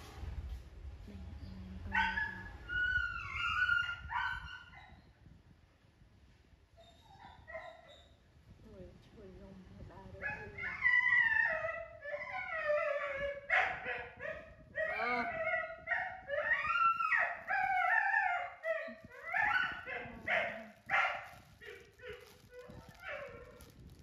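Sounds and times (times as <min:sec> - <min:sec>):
plastic bag crinkling: 0:18.9 - 0:24.0.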